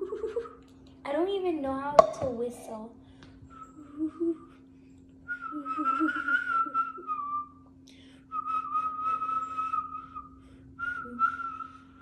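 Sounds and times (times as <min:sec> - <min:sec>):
child whistling: 0:05.3 - 0:07.7, 0:08.3 - 0:12.0.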